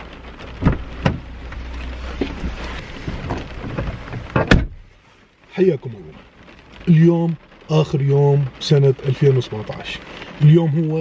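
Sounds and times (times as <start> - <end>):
rain: 0.0 - 11.0
knocks and rustles: 0.4 - 4.9
car door shutting: 0.5 - 4.9.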